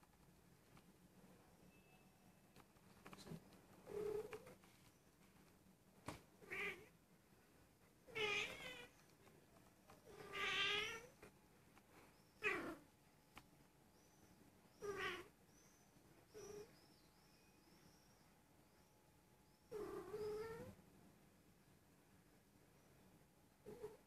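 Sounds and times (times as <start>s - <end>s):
cat meowing: 6.4s - 6.9s, 8.1s - 9.0s, 10.1s - 11.1s, 14.8s - 15.3s.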